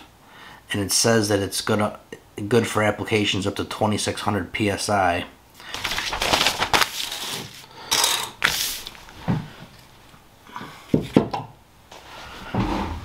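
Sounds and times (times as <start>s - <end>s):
rustling and scraping on table: 6.2s - 11.3s, 11.9s - 13.0s.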